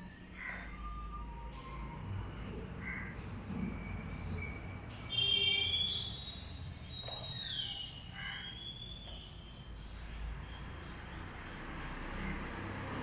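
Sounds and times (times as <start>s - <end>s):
high-pitched whistling squeal: 3.8s - 7.9s.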